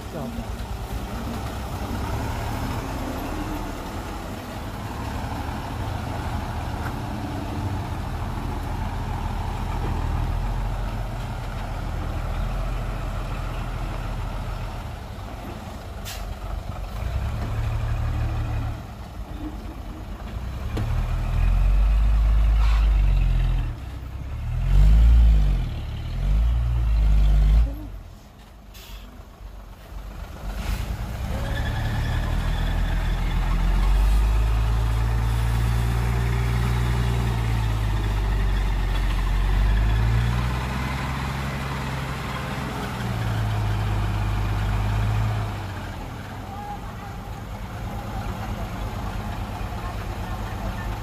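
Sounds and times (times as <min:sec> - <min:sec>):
heavy diesel engine running: 0:33.4 - 0:51.0.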